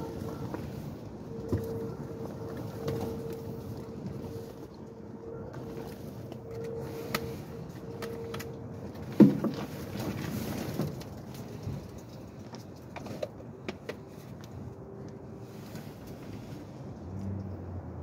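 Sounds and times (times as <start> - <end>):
faint steady hum: 0.0 - 17.9.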